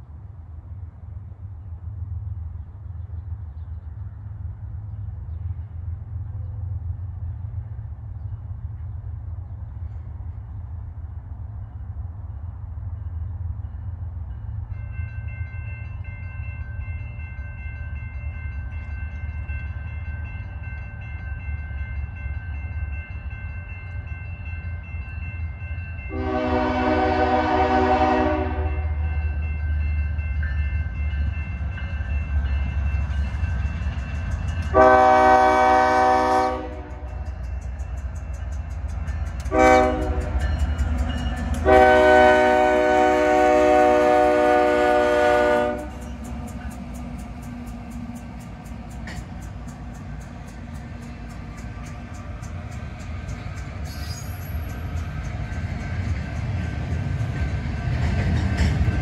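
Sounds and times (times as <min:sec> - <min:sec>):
low train rumble: 0:00.0 - 0:59.0
locomotive air horn blasts: 0:26.1 - 0:29.0, 0:34.7 - 0:37.1, 0:39.5 - 0:40.3, 0:41.6 - 0:46.0.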